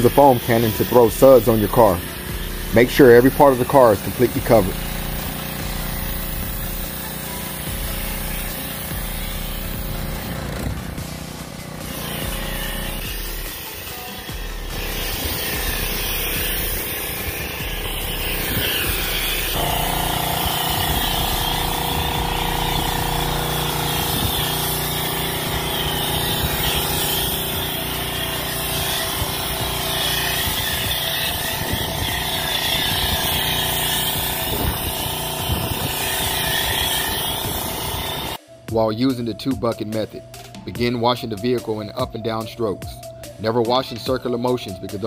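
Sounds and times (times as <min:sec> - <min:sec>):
pressure washer motor hum: 0:00.0 - 0:38.4
hiss of foam spray: 0:05.0 - 0:10.0, 0:32.6 - 0:38.4.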